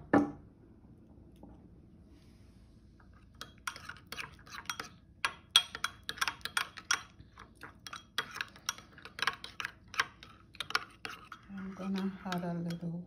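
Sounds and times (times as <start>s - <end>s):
utensil scraping bowl: 3.1s - 13.0s
utensil stirring thick sauce: 3.1s - 13.0s.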